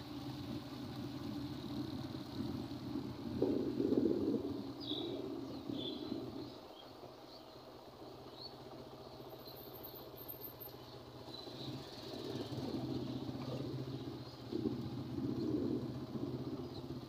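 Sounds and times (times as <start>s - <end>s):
road noise: 0.0s - 17.0s
vehicle engine humming: 0.0s - 17.0s
birds chirping: 3.4s - 17.0s.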